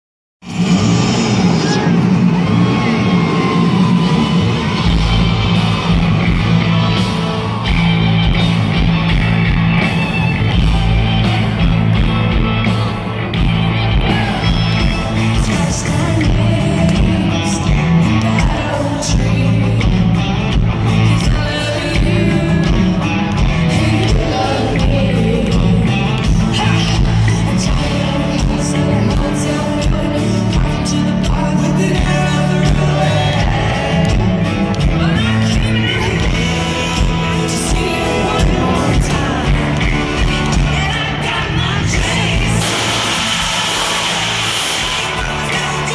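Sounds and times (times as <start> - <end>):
country-rock band playing: 0.4 - 45.9
woman singing: 21.0 - 34.1.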